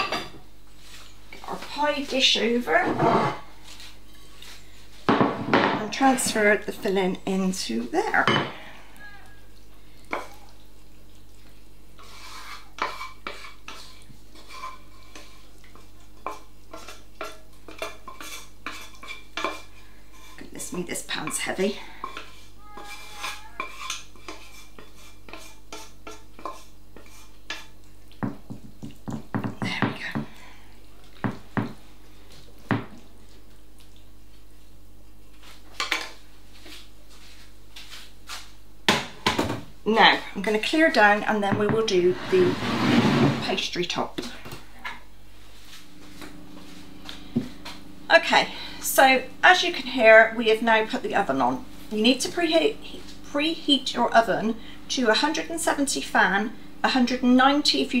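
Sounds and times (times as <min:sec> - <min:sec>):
pans and utensils clinking: 0:00.0 - 0:00.4
spoon scraping and knocking a pan: 0:02.7 - 0:03.5, 0:12.0 - 0:30.3, 0:40.7 - 0:44.0.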